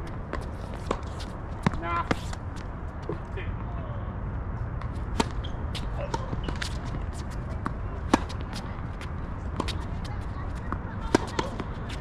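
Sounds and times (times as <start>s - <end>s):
light clicks and scuffs: 0.3s - 3.3s
tennis ball hits: 5.0s - 8.7s, 10.6s - 11.7s.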